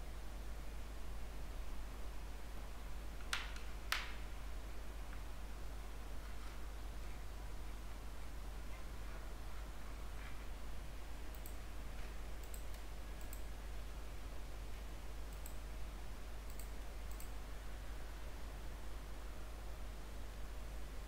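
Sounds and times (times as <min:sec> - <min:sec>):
low hum and hiss: 0:00.0 - 0:21.0
computer mouse clicking: 0:11.3 - 0:13.5, 0:15.3 - 0:15.6, 0:16.5 - 0:17.4.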